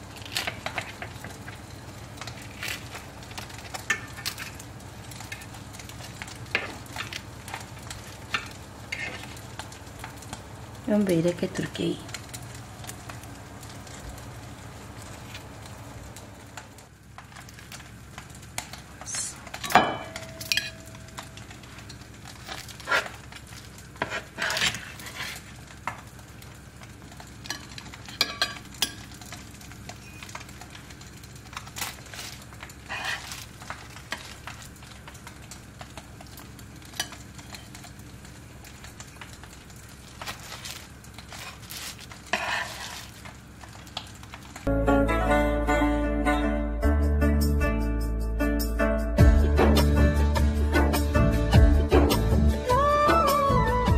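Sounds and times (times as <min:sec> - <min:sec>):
cutlery and dishes clinking: 0:19.6 - 0:20.9, 0:27.5 - 0:29.2.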